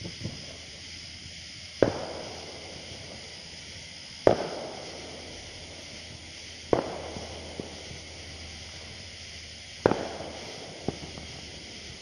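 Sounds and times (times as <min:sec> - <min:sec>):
firecracker bang: 0:01.7 - 0:12.0
faint firecracker pops: 0:01.8 - 0:02.5, 0:04.2 - 0:04.9, 0:06.1 - 0:08.0, 0:09.8 - 0:11.5.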